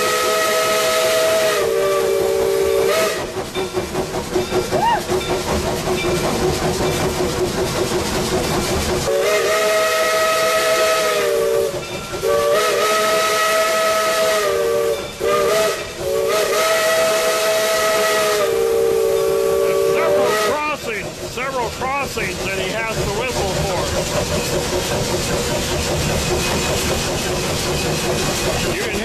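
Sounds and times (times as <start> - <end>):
steam locomotive whistle blasts: 0.0 - 3.4, 9.1 - 20.8
locomotive hiss and rumble: 0.0 - 29.0.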